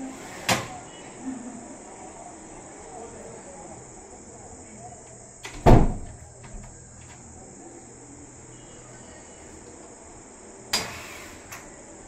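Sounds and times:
faint high-pitched chirr: 0.7 - 1.4, 6.2 - 12.0.

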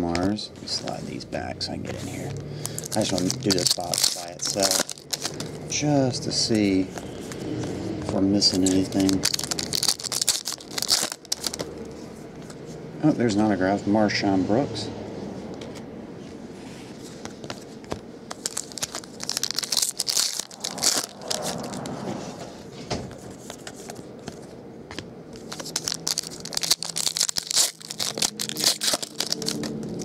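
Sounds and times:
foil wrappers crinkling: 2.6 - 5.9, 8.4 - 11.7, 18.3 - 22.0, 25.4 - 30.0.

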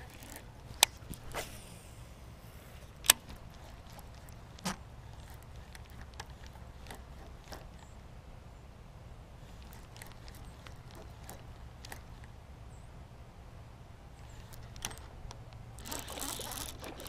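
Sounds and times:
fishing reel clicks and knocks: 0.0 - 1.4, 3.0 - 7.9, 9.5 - 12.3, 14.3 - 17.0
fishing line whirring off spool: 0.0 - 7.9, 9.4 - 12.3, 14.2 - 17.0.

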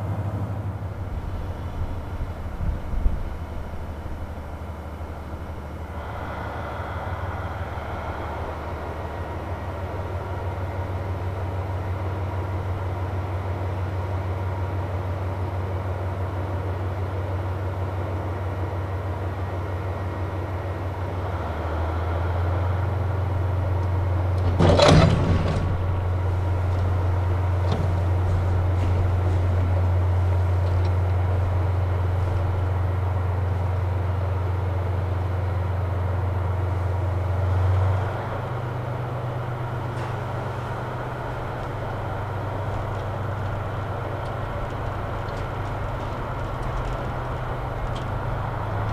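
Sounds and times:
diesel train engine idling: 0.0 - 48.9
loud rush of noise: 5.8 - 10.4.

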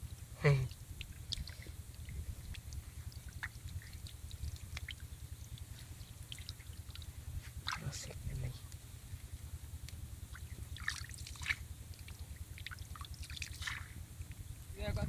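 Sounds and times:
low steady rumble: 0.0 - 15.0
short vocal sound: 0.4 - 0.7
wet clicks of fish on mud: 1.0 - 8.9, 9.8 - 14.4.

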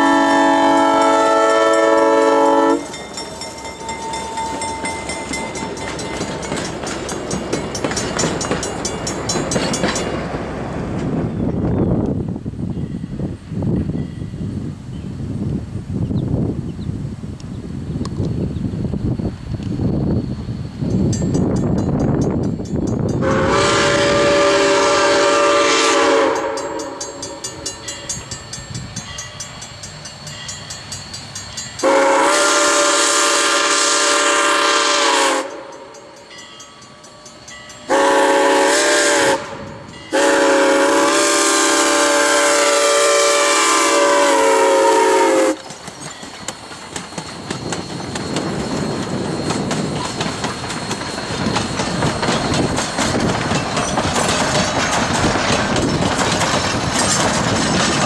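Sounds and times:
train chime whistle blasts: 0.0 - 6.1, 23.1 - 45.7
train rumbling along rails: 0.0 - 58.0
wheels clicking: 45.5 - 58.0.

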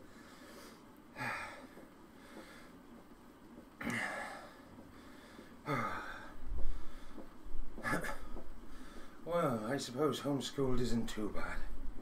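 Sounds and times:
man breathing hard: 0.0 - 2.9, 3.8 - 9.2.

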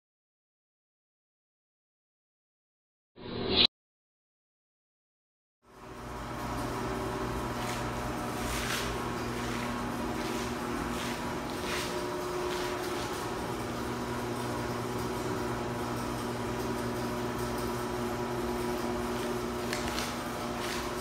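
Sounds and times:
electric fan humming: 5.7 - 21.0.

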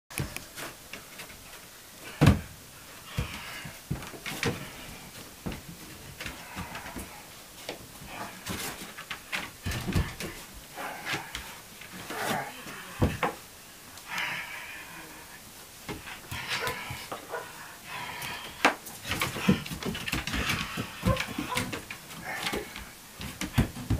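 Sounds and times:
knocks and thumps: 2.1 - 4.8, 18.6 - 23.9.

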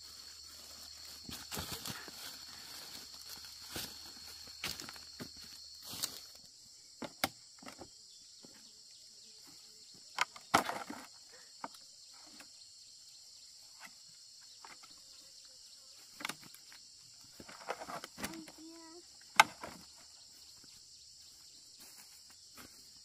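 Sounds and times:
insects chirring: 0.0 - 23.0
knocks and rustles: 10.1 - 12.5.

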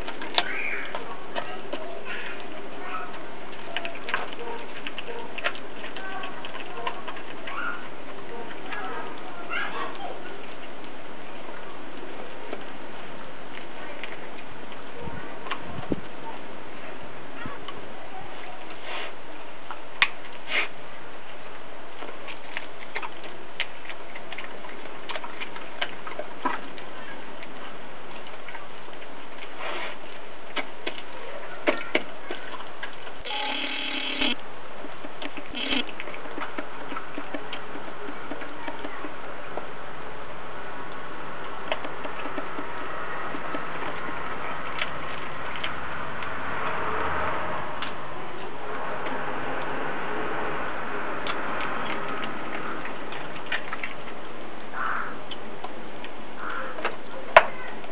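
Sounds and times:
dog crunching bones: 0.0 - 9.2
teeth cracking bone: 35.0 - 39.2.

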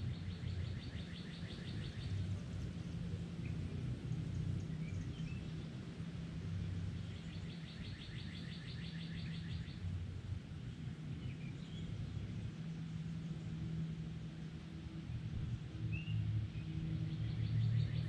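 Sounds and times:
songbird trilling: 7.1 - 9.8.

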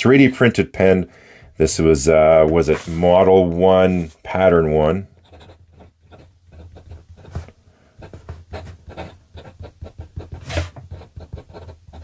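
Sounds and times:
pen nib scratching paper: 5.2 - 12.0.

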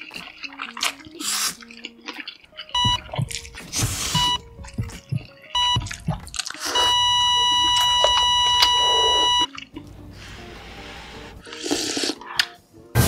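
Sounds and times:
electronic beeps: 2.8 - 3.2, 4.1 - 4.4, 5.5 - 9.5.

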